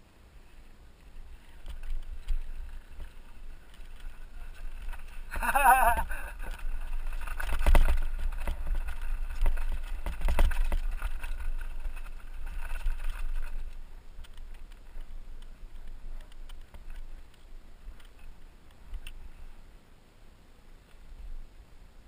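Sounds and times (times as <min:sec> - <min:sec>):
wind rumbling on microphone: 0:00.0 - 0:19.8
bike rattling: 0:00.5 - 0:19.6
tyres crunching over gravel: 0:01.1 - 0:18.2.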